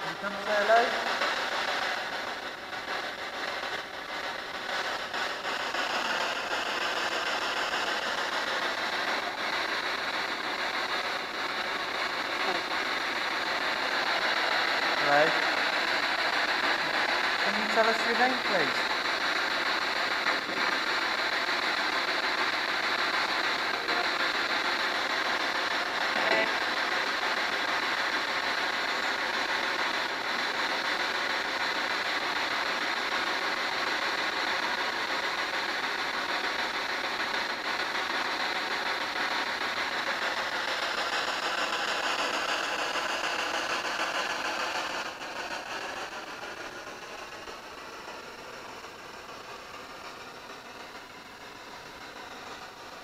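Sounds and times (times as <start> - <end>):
radio static hiss: 0.0 - 53.0.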